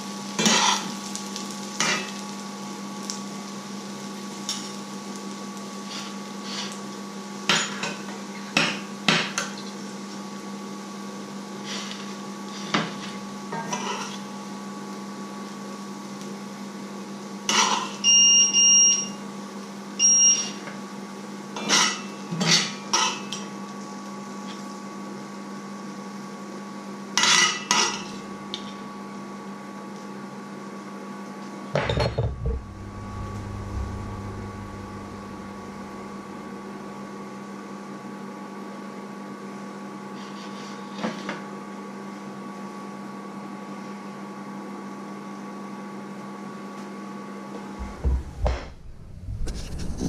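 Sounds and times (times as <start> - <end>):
steady hum: 28.1 - 29.1, 32.1 - 37.8, 47.7 - 50.0.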